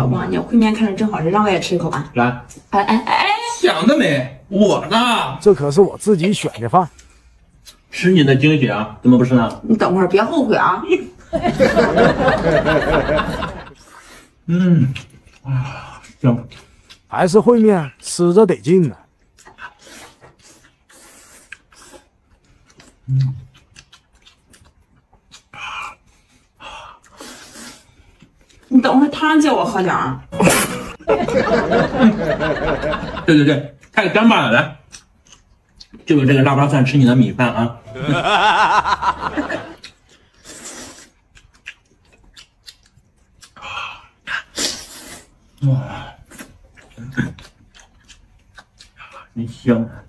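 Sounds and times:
wet chewing smacks: 0:19.1 - 0:28.7, 0:39.7 - 0:45.6, 0:46.2 - 0:49.4
wet mouth clicks: 0:22.7 - 0:26.0.

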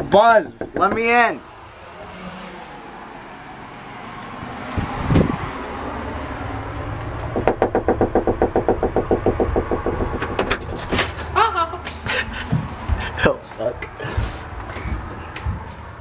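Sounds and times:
knocking on a door: 0:00.6 - 0:01.1, 0:07.4 - 0:10.6.

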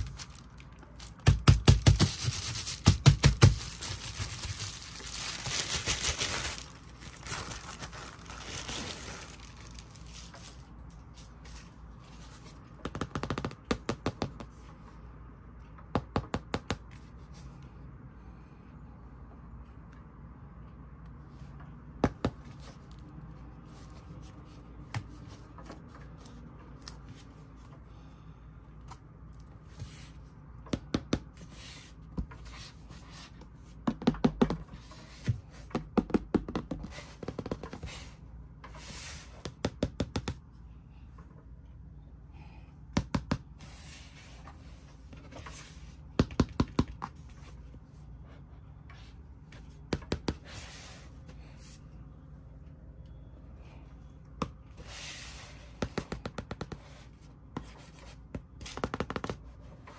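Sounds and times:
taps and clicks on cardboard pages: 0:12.8 - 0:14.6, 0:55.8 - 0:56.9, 0:57.6 - 0:59.5.

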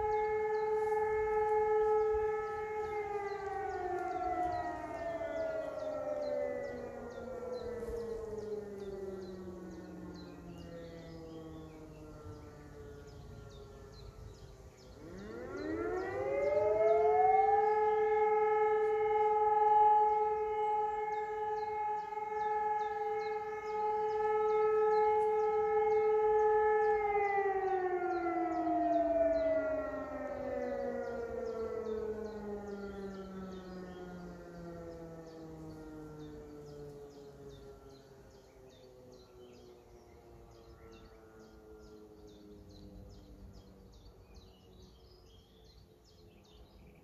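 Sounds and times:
another siren winding down: 0:00.0 - 0:14.2, 0:14.8 - 0:38.0
siren wailing: 0:00.0 - 0:45.0.

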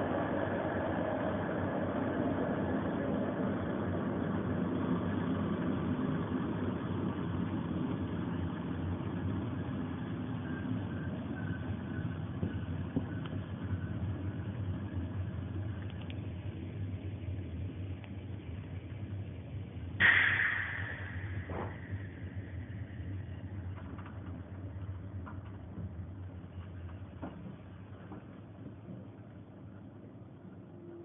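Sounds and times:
train carriage rumbling on rails: 0:00.0 - 0:19.6, 0:20.7 - 0:31.0
faint high squeal: 0:10.3 - 0:14.0, 0:30.7 - 0:31.0.

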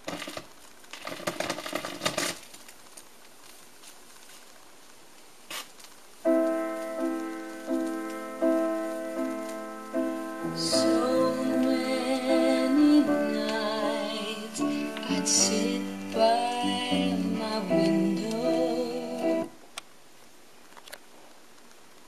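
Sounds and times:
vinyl record crackle and clicks: 0:00.0 - 0:22.0.

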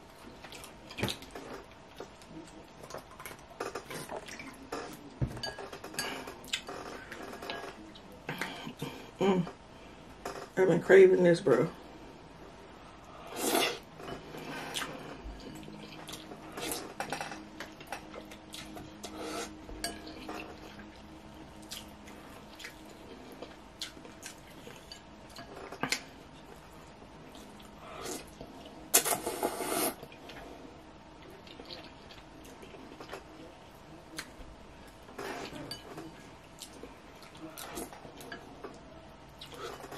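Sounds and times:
slurping noodles: 0:29.0 - 0:30.0.

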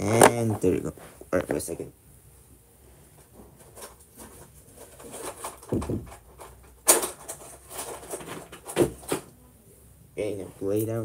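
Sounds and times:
objects clicking and rustling: 0:03.2 - 0:09.3.

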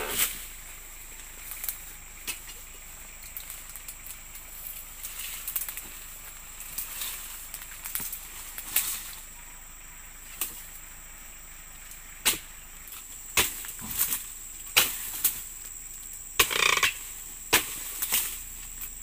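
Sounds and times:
rustling crunch of fronds: 0:00.0 - 0:19.0
chisel chopping palm fronds: 0:12.2 - 0:12.5, 0:13.3 - 0:15.4, 0:16.4 - 0:18.4.

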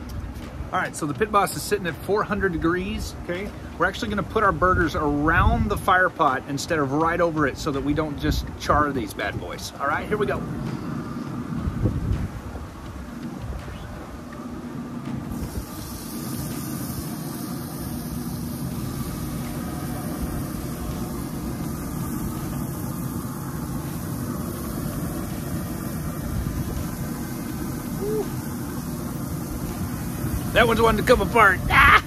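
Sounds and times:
low rumble of running grill: 0:00.0 - 0:32.0
burger patties sizzling on grill: 0:15.2 - 0:32.0.

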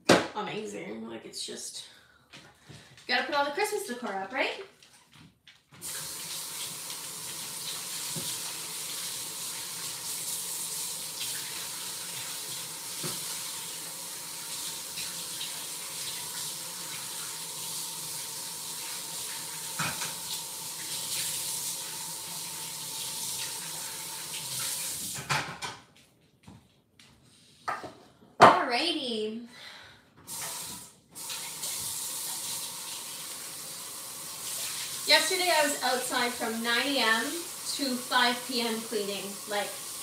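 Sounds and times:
tap running into sink: 0:07.7 - 0:08.5, 0:12.9 - 0:13.4, 0:19.7 - 0:21.3.

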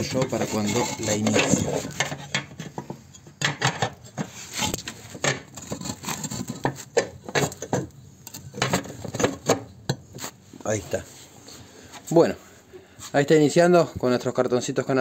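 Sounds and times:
metallic clinks and scrapes: 0:00.0 - 0:03.2.

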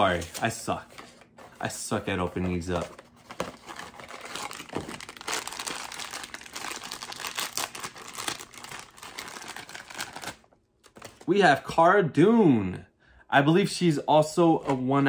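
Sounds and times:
foil bag crinkling and tearing: 0:03.5 - 0:11.3.

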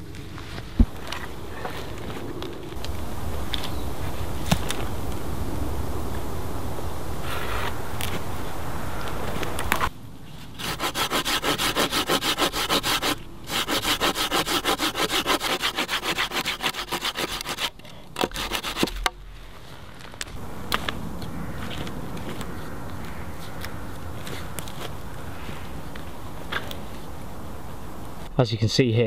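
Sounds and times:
saw cutting through log: 0:10.6 - 0:19.1.

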